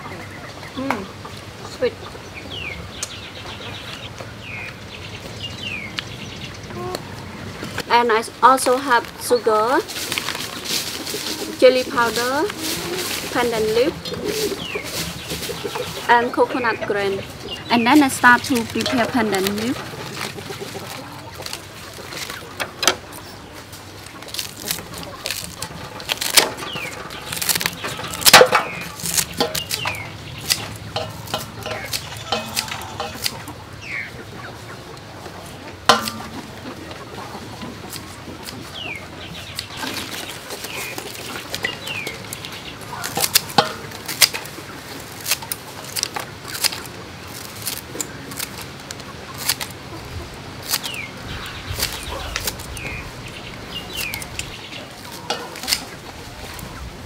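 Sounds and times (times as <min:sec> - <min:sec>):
chickens clucking: 0:00.0 - 0:57.0
scissors snipping leaves: 0:17.7 - 0:22.5, 0:24.0 - 0:33.5, 0:37.9 - 0:53.1, 0:53.8 - 0:56.7.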